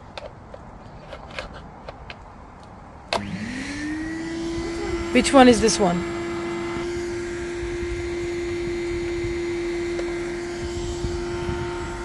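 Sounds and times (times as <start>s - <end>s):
vacuum cleaner motors whining: 3.1s - 12.0s.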